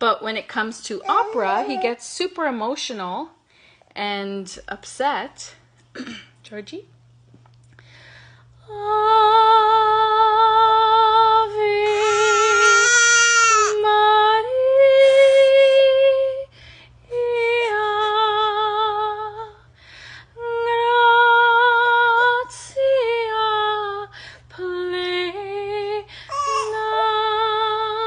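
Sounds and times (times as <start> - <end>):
woman singing opera: 8.6 - 16.5, 17.1 - 19.6, 20.4 - 28.0.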